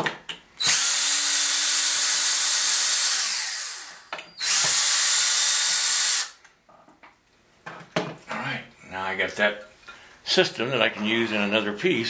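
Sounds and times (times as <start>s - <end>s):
cordless drill running: 0.6s - 6.4s.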